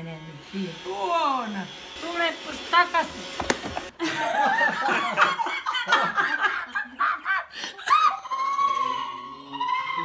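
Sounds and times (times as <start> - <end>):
woman laughing heartily: 3.8 - 8.4.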